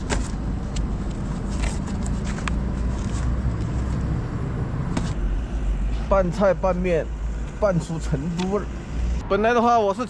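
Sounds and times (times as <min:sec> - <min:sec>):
paper rustling and crackling: 0:01.0 - 0:03.9.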